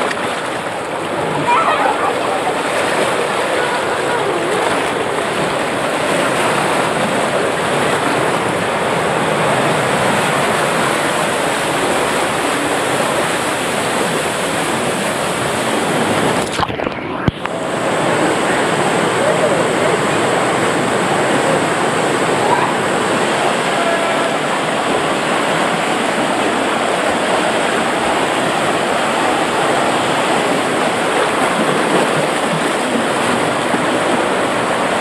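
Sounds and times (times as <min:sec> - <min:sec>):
water rushing down a slide: 0:00.0 - 0:35.0.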